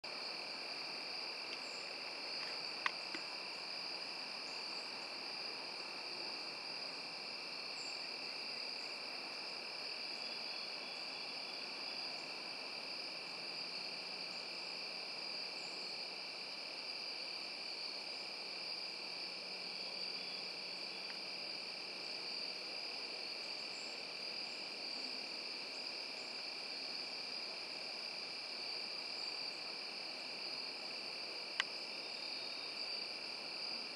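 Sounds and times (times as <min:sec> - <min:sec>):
crickets trilling: 0:00.1 - 0:33.9
faint clicks: 0:01.5 - 0:01.7, 0:31.6 - 0:31.8.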